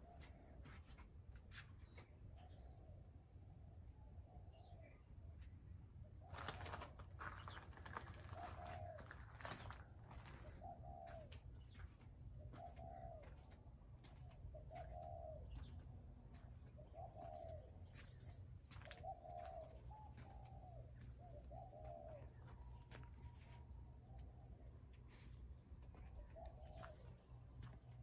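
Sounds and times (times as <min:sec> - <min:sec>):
faint low outdoor hum: 0:00.0 - 0:28.0
dove cooing: 0:06.3 - 0:17.8, 0:18.7 - 0:22.9, 0:25.9 - 0:28.0.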